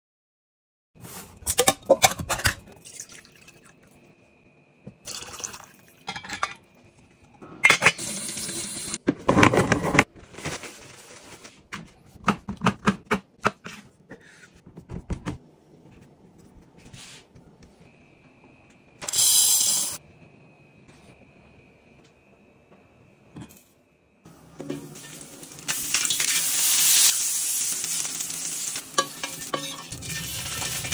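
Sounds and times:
liquid pouring: 2.7 - 3.8, 5.1 - 6.0.

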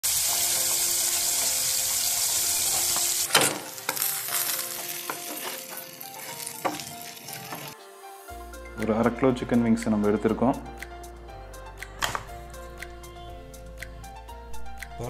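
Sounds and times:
chicken wings sizzling in hot oil: 0.0 - 8.3
wooden spatula scraping a pan: 3.8 - 7.8.

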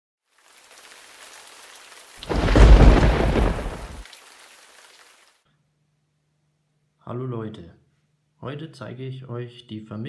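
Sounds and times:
steady rain: 0.3 - 5.4
thunder clap rumbling: 2.2 - 4.0.

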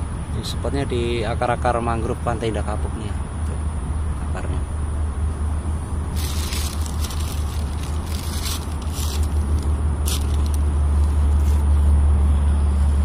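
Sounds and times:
steady low rumble: 0.0 - 13.0
footsteps crunching on dry leaves: 6.1 - 11.7.

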